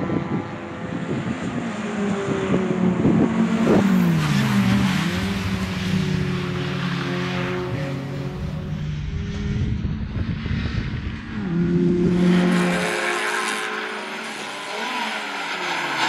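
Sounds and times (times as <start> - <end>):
racing car engines: 0.0 - 16.0
car passing by: 3.2 - 16.0.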